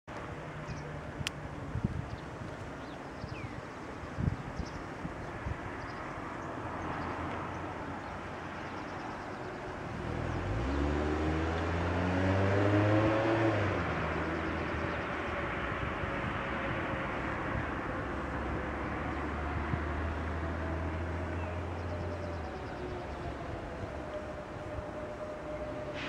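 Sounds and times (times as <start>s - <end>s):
vehicle accelerating: 9.8s - 26.0s.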